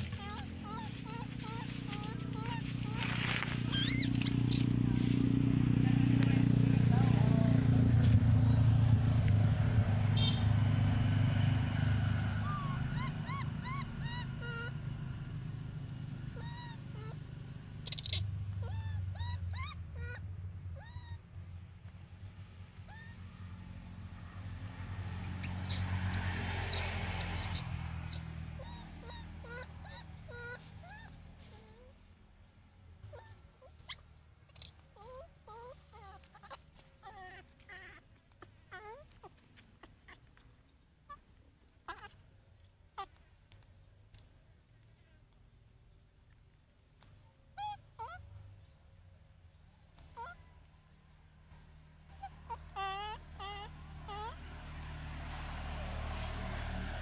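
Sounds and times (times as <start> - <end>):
baby monkey squeaky coos: 0.0 - 5.0, 12.4 - 21.5, 22.7 - 23.2, 25.4 - 32.1, 32.9 - 40.4, 41.0 - 42.2, 42.9 - 43.2, 47.1 - 48.4, 49.9 - 50.5, 51.5 - 54.5.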